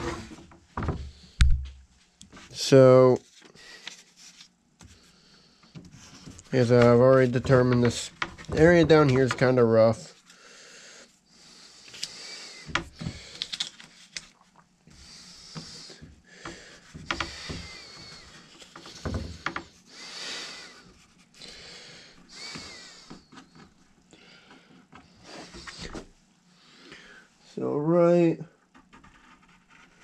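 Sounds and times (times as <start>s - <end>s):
paper rustling on wooden board: 5.9s - 10.3s.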